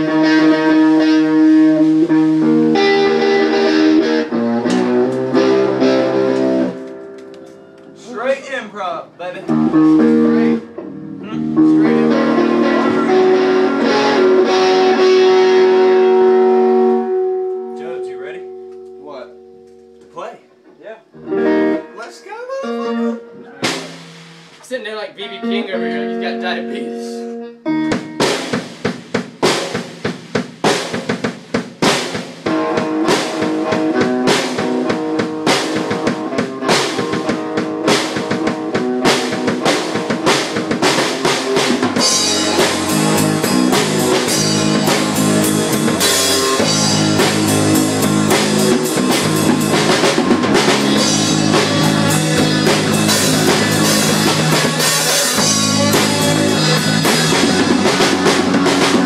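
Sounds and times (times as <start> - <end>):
electric bass line: 0.0 - 6.8, 9.4 - 19.6, 32.5 - 59.0
drum kit groove: 0.0 - 19.2, 21.8 - 26.8, 27.7 - 59.0.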